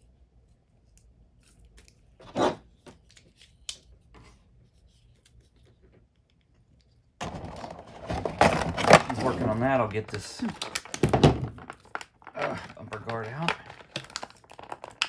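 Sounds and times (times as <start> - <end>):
plastic bag crinkling: 7.2 - 15.0
plastic bag tearing rustle: 7.2 - 15.0.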